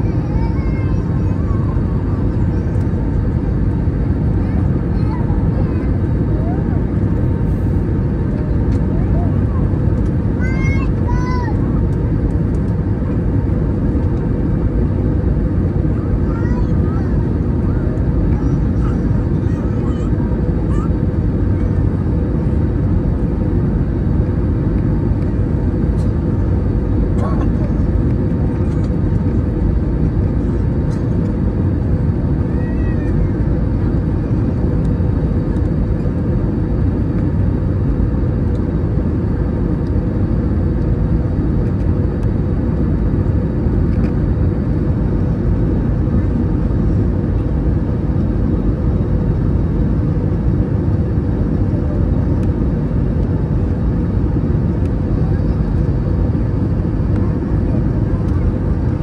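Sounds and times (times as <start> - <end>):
airplane cabin roar: 0.0 - 59.0
steady low hum: 0.0 - 59.0.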